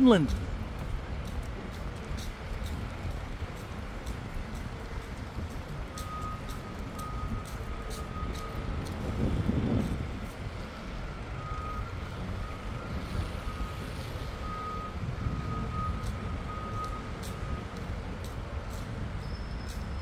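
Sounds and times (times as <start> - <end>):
street traffic rumbling: 0.0 - 20.0
reversing alarm beeping: 5.9 - 9.4, 11.4 - 17.9.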